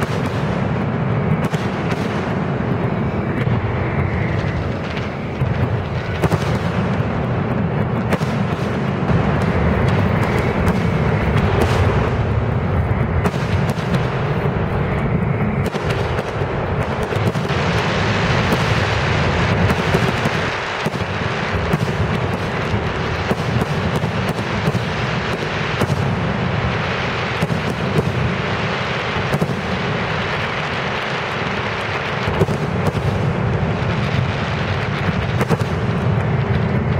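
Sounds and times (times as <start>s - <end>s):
fireworks booming: 0.0s - 36.9s.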